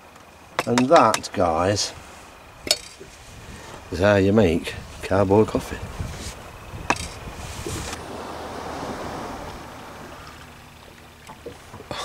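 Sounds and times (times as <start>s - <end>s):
water lapping against boat hull: 0.4s - 12.0s
wind on microphone: 1.9s - 10.8s.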